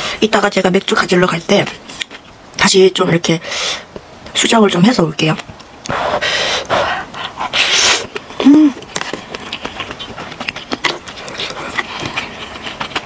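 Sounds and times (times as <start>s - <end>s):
noodles slurped: 5.9s - 13.0s
wet chewing clicks: 6.6s - 13.0s
person humming: 8.4s - 8.8s.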